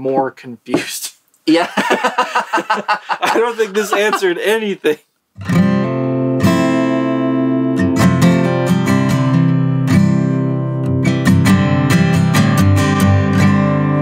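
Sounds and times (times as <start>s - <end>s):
acoustic guitar strumming chords: 5.4s - 14.0s.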